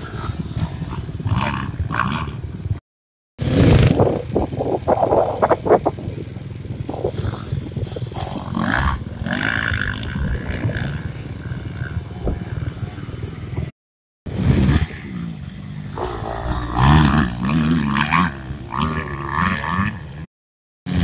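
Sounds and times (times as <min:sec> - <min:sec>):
motocross engines revving: 0:00.0 - 0:02.8, 0:03.4 - 0:13.7, 0:14.3 - 0:20.3
wind buffeting microphone: 0:03.5 - 0:13.7.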